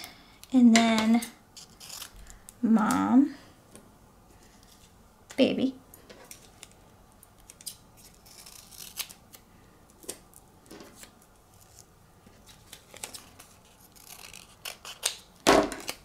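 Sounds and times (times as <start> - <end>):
paper crinkling: 10.8 - 15.2.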